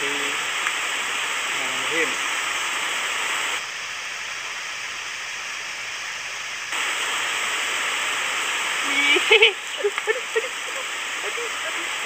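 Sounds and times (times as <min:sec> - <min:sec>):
river water flowing: 0:00.0 - 0:12.0.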